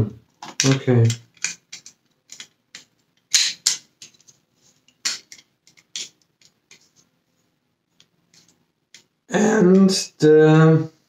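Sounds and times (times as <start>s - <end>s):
plastic parts clicking and knocking: 0.3s - 6.9s.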